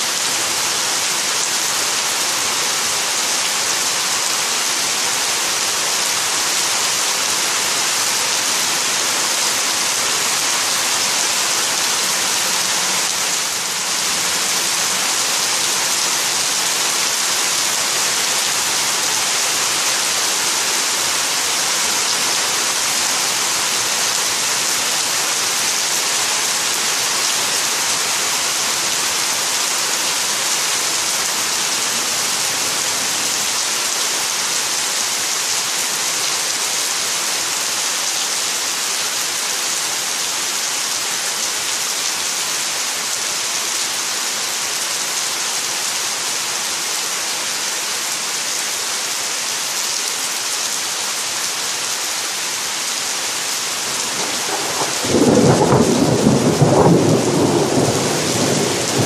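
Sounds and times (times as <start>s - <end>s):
heavy rain falling: 0.0s - 59.0s
thunder clap rumbling: 54.0s - 59.0s.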